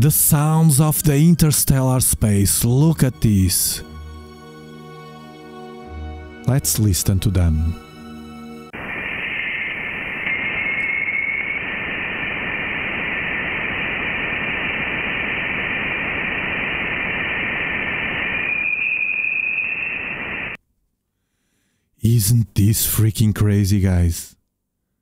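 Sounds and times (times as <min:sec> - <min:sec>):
steady static hiss: 0:08.7 - 0:20.6
rising whistling tone: 0:08.8 - 0:13.5, 0:17.6 - 0:20.6.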